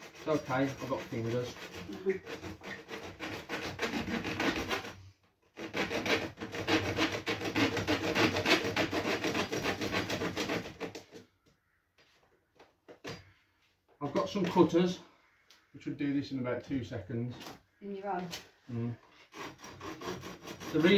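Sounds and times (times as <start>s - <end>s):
blade sawing plastic pipe: 0.0s - 11.2s, 19.1s - 20.9s.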